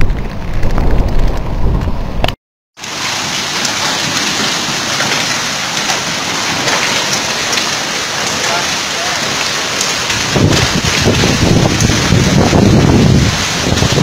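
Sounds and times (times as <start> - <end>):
heavy rain on flooded street: 2.8 - 14.0.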